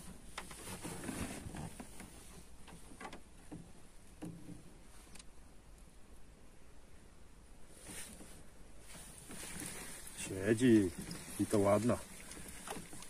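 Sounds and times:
faint clicks and knocks: 1.5s - 5.9s.

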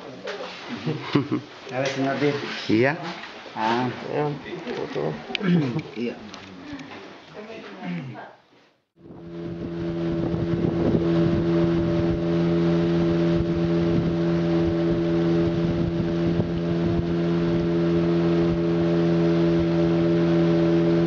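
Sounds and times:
motorboat engine running: 9.0s - 21.0s.

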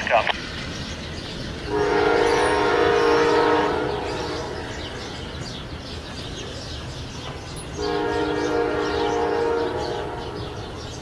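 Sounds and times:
train rumbling: 0.0s - 11.0s
locomotive horn blasts: 1.7s - 4.7s, 7.8s - 10.6s.

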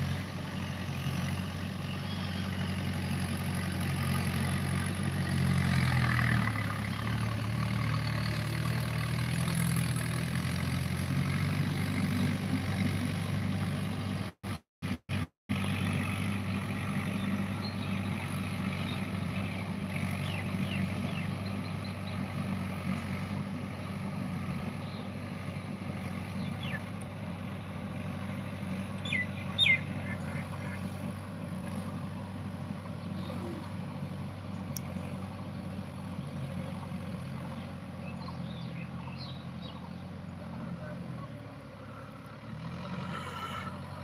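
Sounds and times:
distant tractor diesel engine: 0.0s - 44.0s
high bird chirps: 29.0s - 30.4s.

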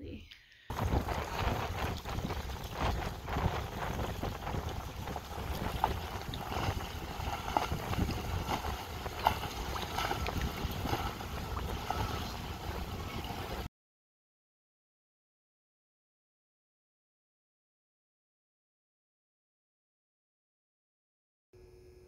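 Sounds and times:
speedboat engine rumble: 0.7s - 13.7s
wind buffeting microphone: 0.7s - 13.7s.

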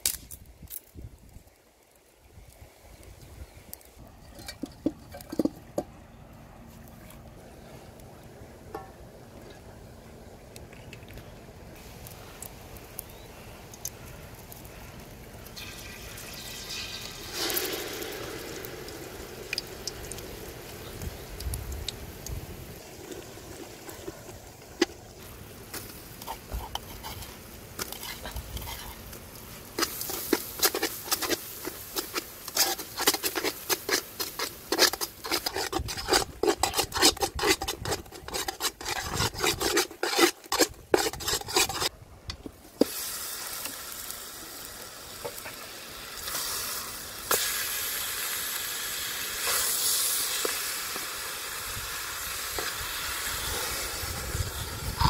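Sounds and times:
oil sizzling: 11.8s - 55.0s
metal spoon scraping a pot: 26.2s - 29.1s, 29.8s - 41.9s.

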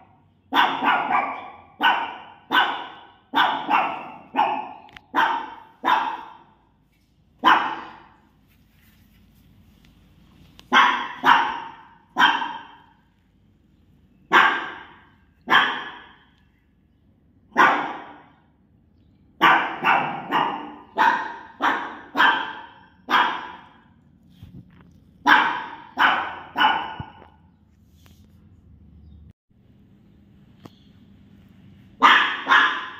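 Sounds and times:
small dog barking: 0.0s - 6.6s, 7.4s - 8.2s, 10.6s - 13.0s, 14.2s - 16.3s, 17.5s - 18.4s, 19.4s - 24.0s, 25.2s - 27.4s, 32.0s - 32.9s.

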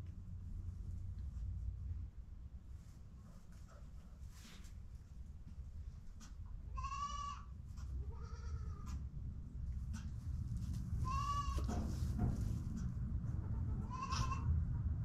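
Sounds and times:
goat bleating in strain: 6.8s - 8.9s, 11.0s - 11.7s, 13.4s - 14.5s.

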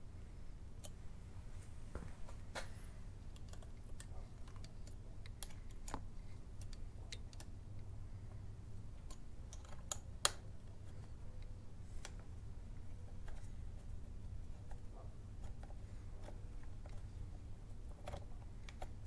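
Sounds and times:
steady low hum: 0.0s - 19.0s
metal clicks and taps: 3.3s - 7.9s.

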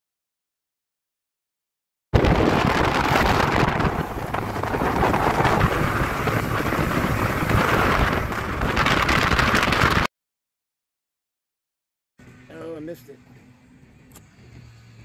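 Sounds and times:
wind buffeting microphone: 2.2s - 10.1s
outboard motor: 2.3s - 9.9s.

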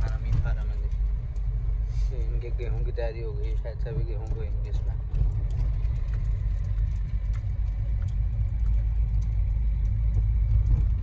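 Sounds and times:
car engine and road rumble: 0.0s - 11.0s
light clicks: 3.4s - 11.0s.

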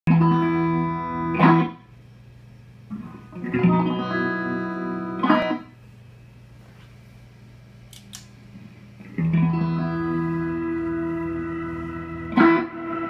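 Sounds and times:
electric guitar chords: 0.1s - 1.9s, 2.9s - 5.8s, 9.0s - 13.0s
low amplifier hum: 0.1s - 13.0s.

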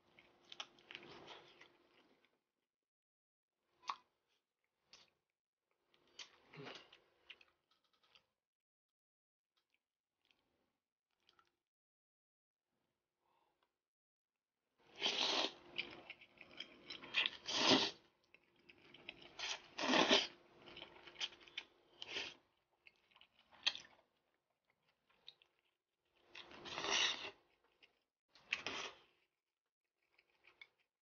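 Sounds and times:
noodle slurping: 15.0s - 15.6s, 17.3s - 18.0s
wet chewing sounds: 15.0s - 29.3s.

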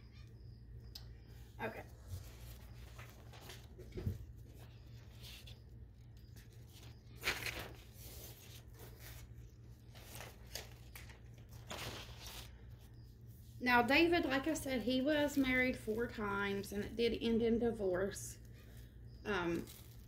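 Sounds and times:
low steady hum: 0.0s - 20.0s
cellophane crinkling: 2.0s - 12.9s, 18.4s - 20.0s.

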